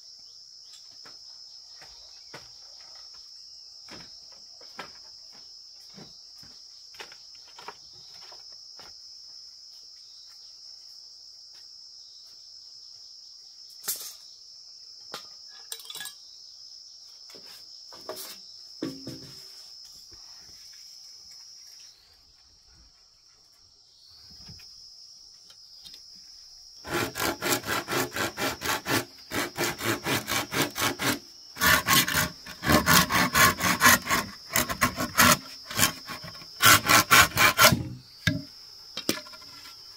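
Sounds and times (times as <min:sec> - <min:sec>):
insects chirring: 0:00.0 - 0:39.9
hand tool rasping on bamboo: 0:26.8 - 0:38.5.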